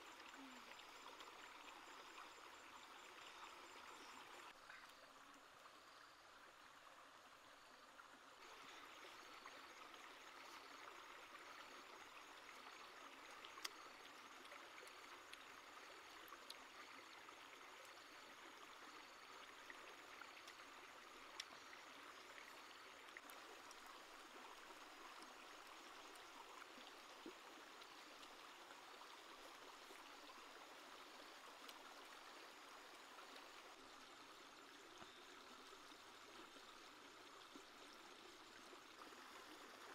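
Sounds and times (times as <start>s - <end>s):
stream running water: 0.0s - 39.9s.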